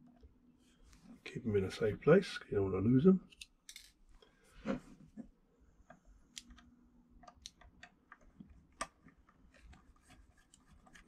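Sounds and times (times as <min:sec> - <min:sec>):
small clicks and taps: 0:05.8 - 0:11.0.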